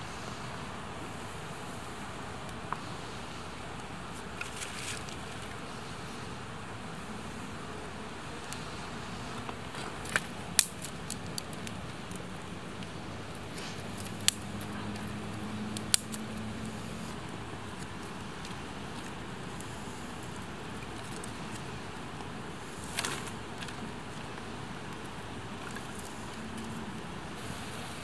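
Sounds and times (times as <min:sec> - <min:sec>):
campfire crackling and popping: 0:09.4 - 0:27.1.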